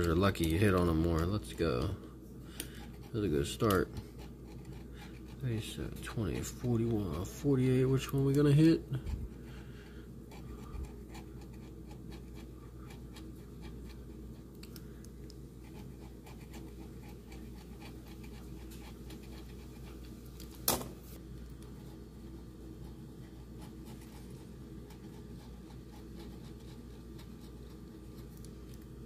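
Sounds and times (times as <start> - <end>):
low background hum: 0.0 - 29.0
pen scratching lottery ticket: 2.8 - 8.7, 10.3 - 14.6, 15.6 - 20.0, 21.8 - 28.4.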